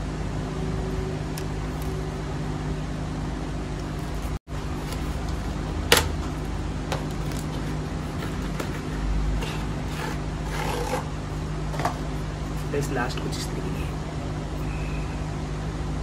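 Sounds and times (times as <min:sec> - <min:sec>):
steady low hum: 0:00.0 - 0:16.0
cardboard and plastic packaging handled: 0:03.8 - 0:11.1
scraping and rustling: 0:03.8 - 0:13.0.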